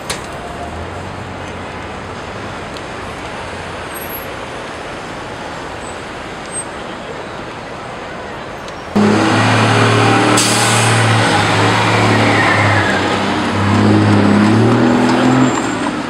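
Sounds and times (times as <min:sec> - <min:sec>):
vehicle engine running: 0:09.0 - 0:15.2.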